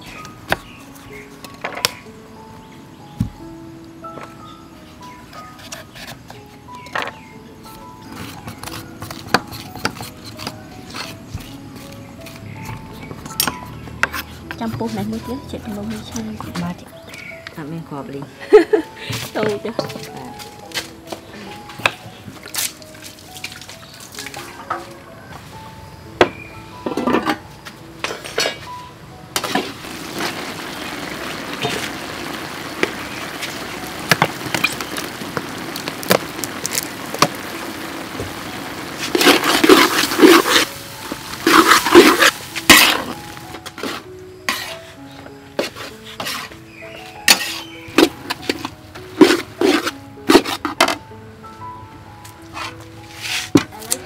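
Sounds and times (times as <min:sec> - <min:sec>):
background music: 0:00.0 - 0:54.0
rushing water: 0:29.6 - 0:43.5.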